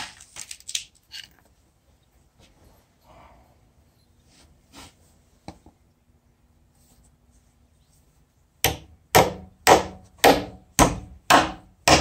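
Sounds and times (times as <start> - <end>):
hammer striking metal anchor: 8.6 - 12.0.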